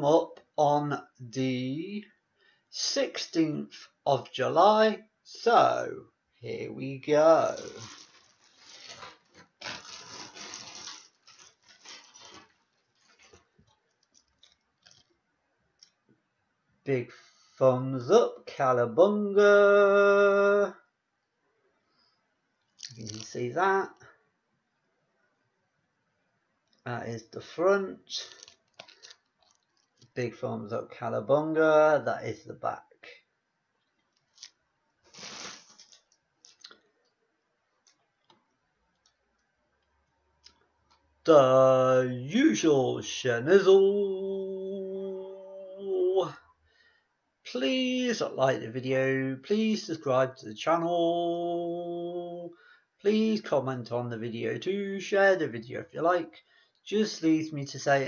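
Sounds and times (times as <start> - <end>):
packaging rustling: 7.4 - 15.1, 22.8 - 23.4, 28.2 - 30.2, 34.2 - 36.8.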